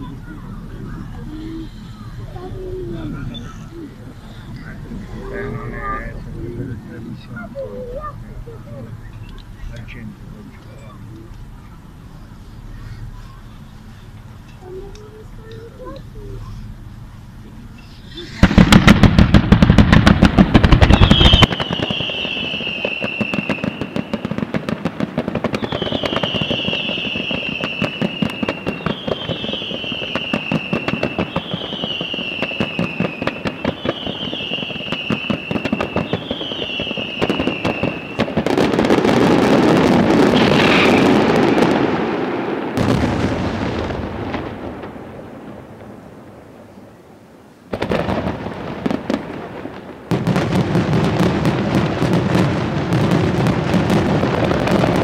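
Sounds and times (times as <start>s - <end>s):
fireworks bangs and crackling: 0.0s - 55.0s
rumble of firework bursts: 0.0s - 55.0s
firework whistle sliding down: 20.8s - 24.2s.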